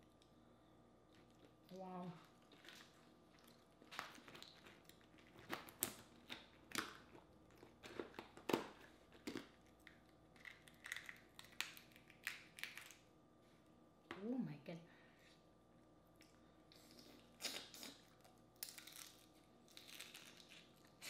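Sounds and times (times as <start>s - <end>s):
crawfish shells cracking: 2.4s - 13.0s, 17.5s - 21.0s.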